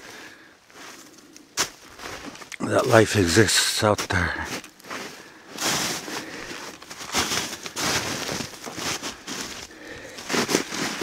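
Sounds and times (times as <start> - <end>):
footsteps crunching in snow: 0.7 - 11.0
rustling: 4.5 - 11.0.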